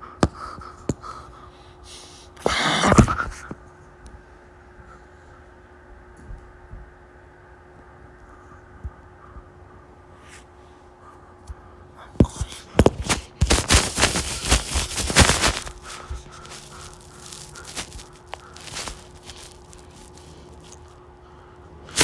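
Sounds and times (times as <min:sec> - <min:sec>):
faint steady hum: 0:00.0 - 0:22.0
loud rustling and scraping: 0:12.4 - 0:20.9.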